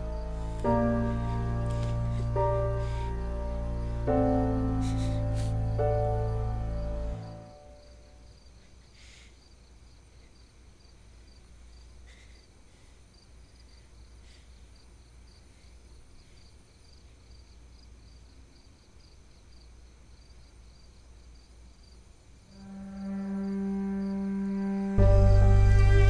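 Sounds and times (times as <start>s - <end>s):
low steady hum: 0.0s - 8.8s, 22.1s - 26.0s
cricket chirping: 0.0s - 26.0s.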